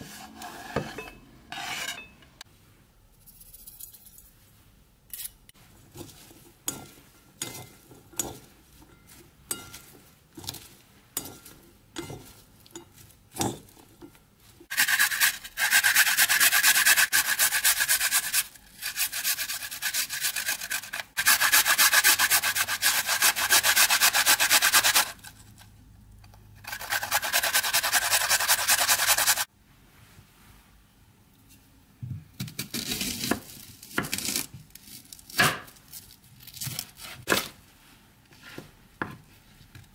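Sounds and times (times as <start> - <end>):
garlic rasping on metal grater: 14.7 - 25.3, 26.6 - 29.5.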